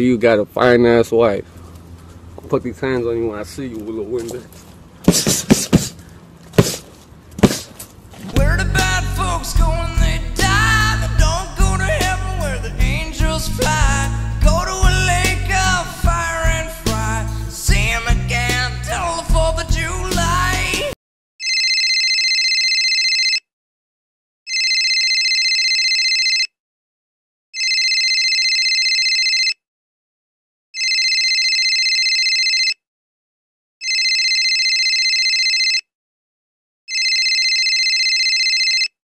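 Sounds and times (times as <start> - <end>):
phone ringtone: 21.4 - 23.5, 24.5 - 26.5, 27.6 - 29.6, 30.8 - 32.8, 33.8 - 35.9, 36.9 - 39.0.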